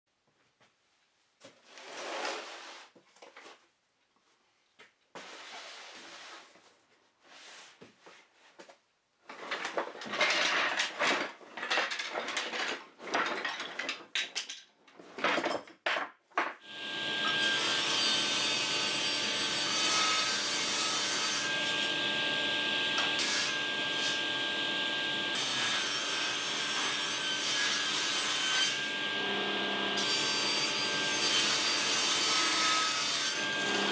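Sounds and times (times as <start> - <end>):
wood offcuts clattering: 9.3 - 16.6
table saw cutting wood: 16.7 - 33.9.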